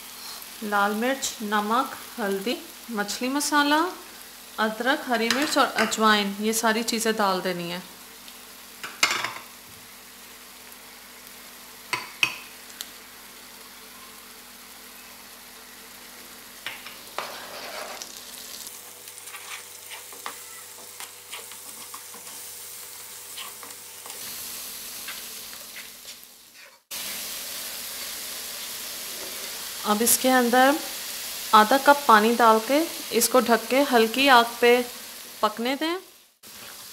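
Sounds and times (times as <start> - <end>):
masala sizzling in hot oil: 0.0 - 36.9
spoon scraping pan: 16.8 - 18.2, 19.2 - 22.5, 23.2 - 24.2, 25.0 - 27.0.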